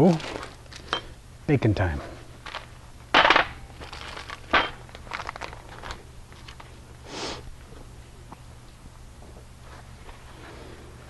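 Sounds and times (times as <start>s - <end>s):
paper rustling and crinkling: 0.0s - 0.9s, 2.4s - 2.7s, 3.8s - 6.8s.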